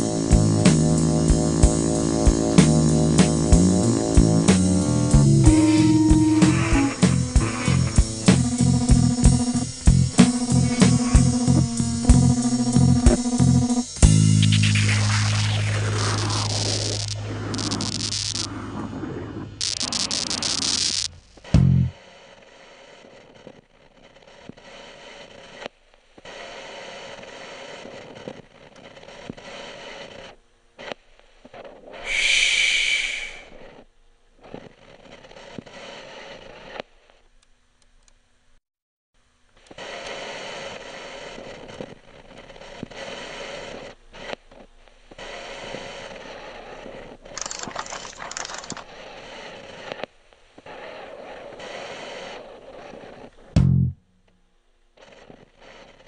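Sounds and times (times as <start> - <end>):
scratchy static noise: 0.0 - 38.6, 39.2 - 56.0
high-pitched squeal: 1.8 - 21.2, 32.0 - 33.6.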